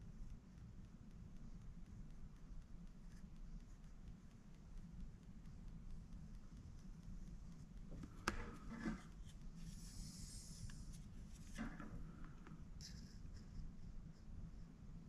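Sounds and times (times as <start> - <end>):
hissy brush strokes: 0.0 - 15.0
low steady hum: 0.0 - 15.0
paintbrush scraping and rubbing: 8.4 - 11.8.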